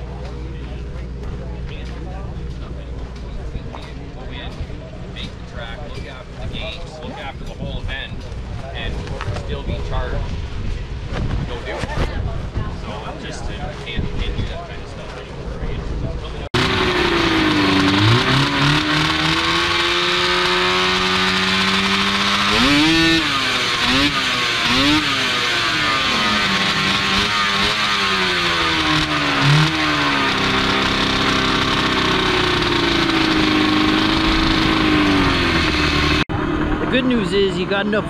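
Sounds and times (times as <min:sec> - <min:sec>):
snowmobile engine revving: 0:16.3 - 0:38.0.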